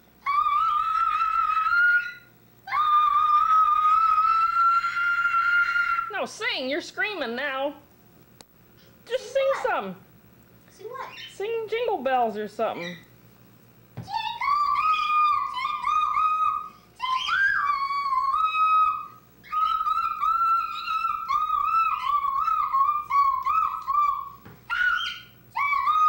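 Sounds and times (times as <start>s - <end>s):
person whistling a high tune: 14.1s - 26.0s.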